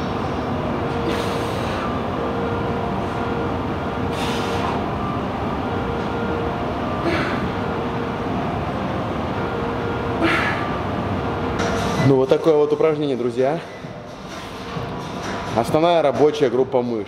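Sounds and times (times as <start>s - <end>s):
gym background noise: 0.0s - 17.0s
forceful hissing exhale: 4.1s - 4.8s.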